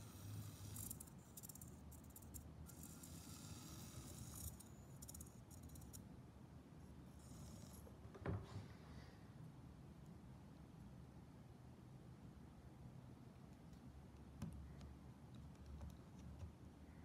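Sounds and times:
tiny electric motor chattering: 0.0s - 6.0s, 7.2s - 7.8s.

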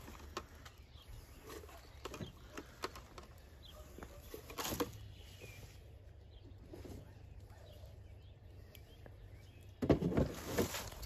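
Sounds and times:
faint bird chirps: 0.1s - 9.8s
short rustle: 10.2s - 11.0s.

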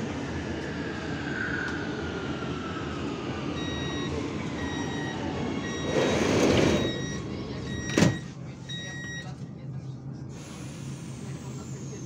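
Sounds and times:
train door warning beeps: 3.6s - 9.4s.

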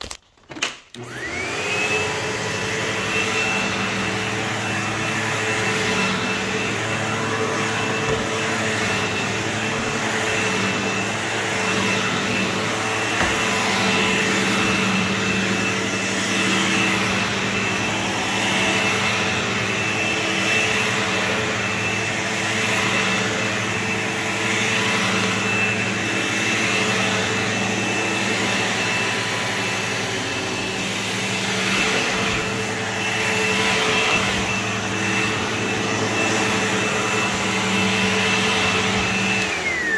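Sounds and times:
vacuum cleaner running on carpet: 0.0s - 39.9s.

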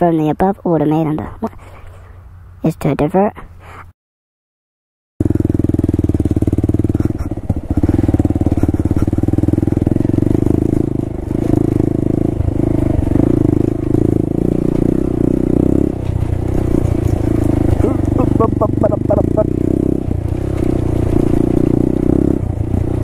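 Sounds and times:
motorcycle engine running: 5.2s - 23.0s.

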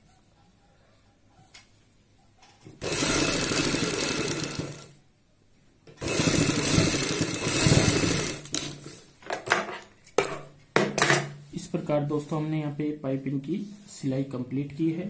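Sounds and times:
sewing machine stitching: 2.8s - 5.0s, 6.0s - 9.0s.

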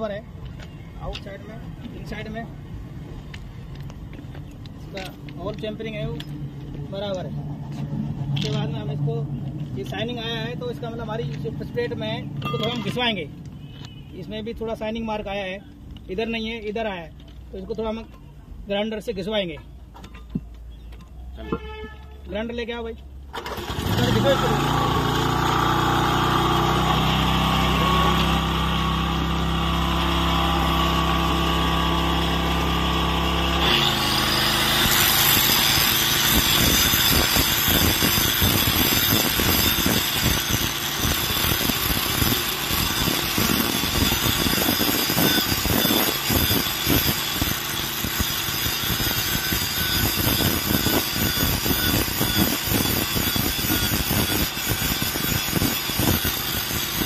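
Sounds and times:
angle grinder grinding steel: 23.8s - 57.0s.

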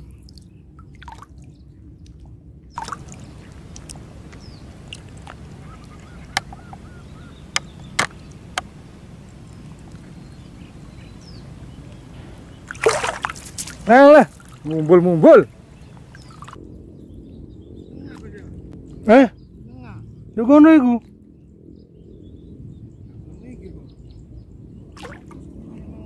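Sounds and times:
steady low rumble: 1.6s - 20.4s
faint bird calls: 2.8s - 20.2s
sharp clicks: 7.5s - 8.7s.

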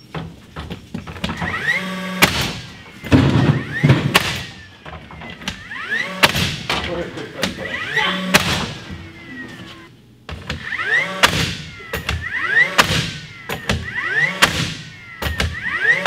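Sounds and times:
sharp knocks: 0.0s - 7.6s
cordless drill whirring: 1.3s - 6.2s, 7.6s - 9.9s, 10.5s - 16.0s.

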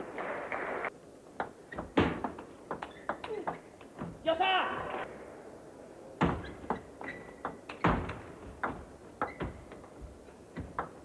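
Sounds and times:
ping pong ball hitting bats and table: 1.4s - 3.9s, 6.2s - 9.8s.

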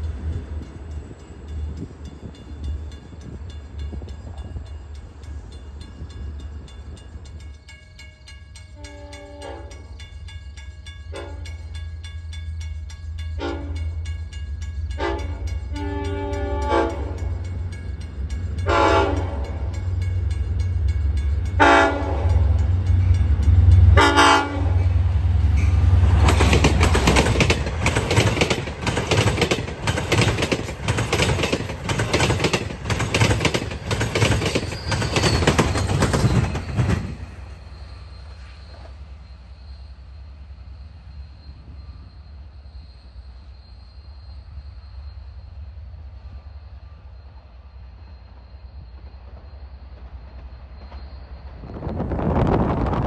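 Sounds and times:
train wheels clattering on rails: 0.0s - 39.8s, 48.2s - 53.0s
train horn blasts: 8.6s - 10.0s, 11.1s - 11.6s, 13.4s - 14.0s, 14.9s - 17.5s, 18.6s - 20.0s, 21.5s - 25.8s.

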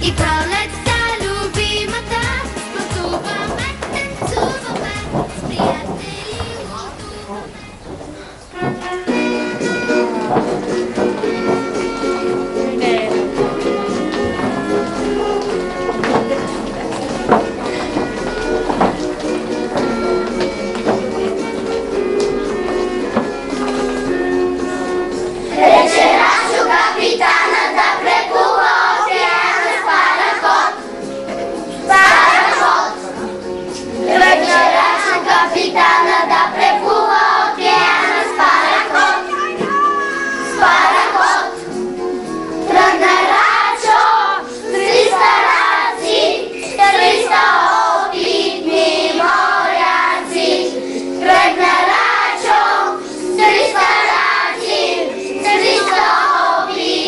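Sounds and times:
musical accompaniment: 0.0s - 57.0s
children singing in chorus: 25.4s - 30.8s, 31.9s - 33.2s, 34.0s - 39.7s, 40.4s - 57.0s.

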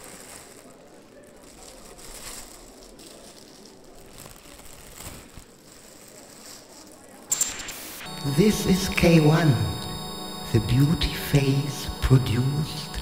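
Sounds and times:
plastic sheeting rustling: 0.0s - 7.1s.

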